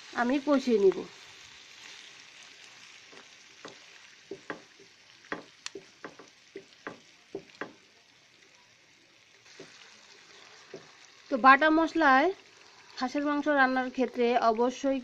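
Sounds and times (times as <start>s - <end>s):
meat sizzling in frying pan: 0.0s - 15.0s
wooden spatula clicking and knocking: 3.1s - 7.8s.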